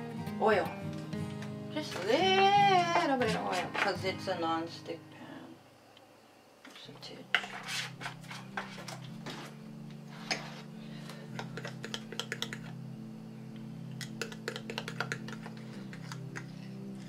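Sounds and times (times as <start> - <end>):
soft background music: 0.0 - 5.6, 7.1 - 17.0
fork scraping against glass: 7.4 - 9.4.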